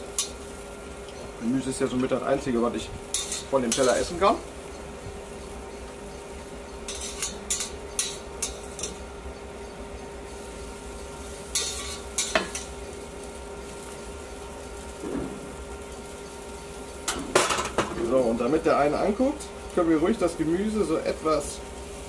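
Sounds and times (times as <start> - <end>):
steady low hum: 0.0 - 22.0
metal tongs clicking and scraping: 6.9 - 9.0.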